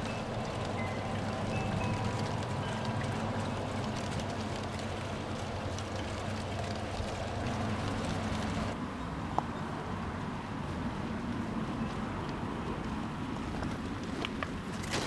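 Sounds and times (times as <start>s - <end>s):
train rumbling along track: 0.0s - 8.8s.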